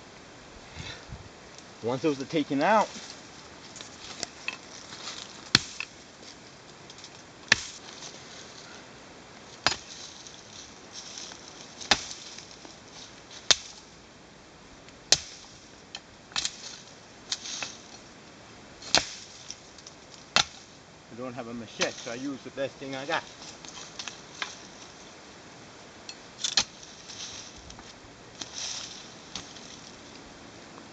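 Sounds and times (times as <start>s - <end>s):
pick chopping into soil and roots: 3.8s - 6.0s, 7.5s - 8.0s, 9.6s - 10.3s, 11.1s - 12.7s, 13.4s - 13.8s, 15.1s - 15.6s, 16.3s - 17.9s, 18.9s - 19.6s, 20.3s - 20.7s, 26.4s - 27.6s, 28.4s - 29.8s.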